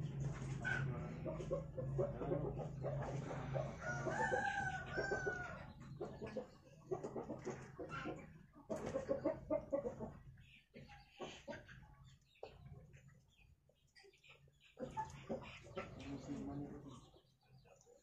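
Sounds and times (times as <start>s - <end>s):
rooster crowing: 3.7s - 5.6s.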